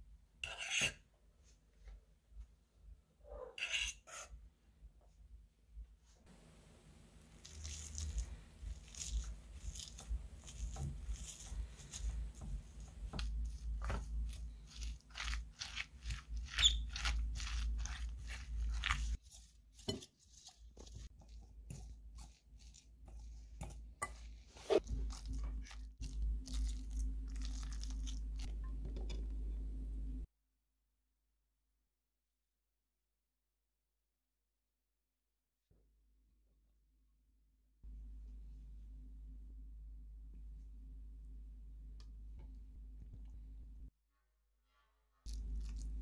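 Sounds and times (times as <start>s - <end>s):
utensil mashing food in glass bowl: 7.4s - 28.5s.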